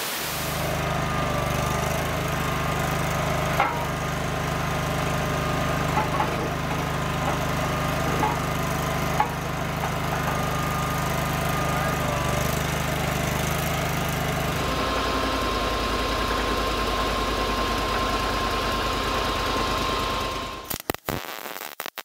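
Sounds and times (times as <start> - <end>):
small engine running: 0.5 - 20.7
thin steady whine: 5.4 - 18.8.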